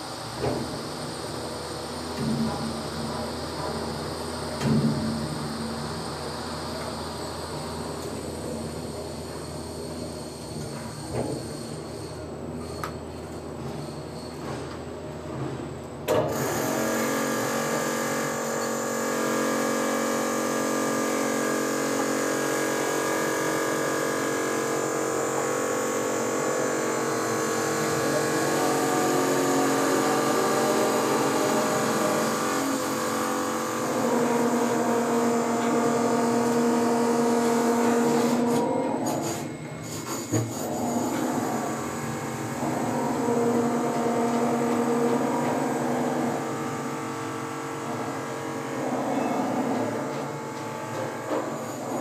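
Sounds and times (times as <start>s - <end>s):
crane motors whining: 16.3s - 52.0s.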